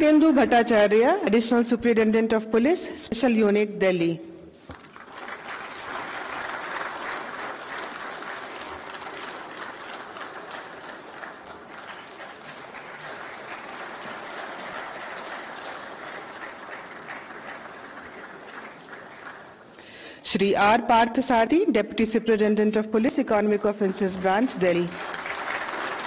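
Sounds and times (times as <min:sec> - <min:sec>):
audience applauding: 0:04.6 - 0:19.9, 0:24.2 - 0:26.0.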